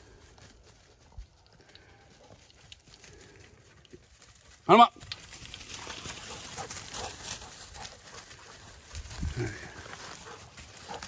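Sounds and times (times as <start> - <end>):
leaves and twigs crackling: 0.0 - 11.0
footsteps through dry leaves: 5.2 - 11.0.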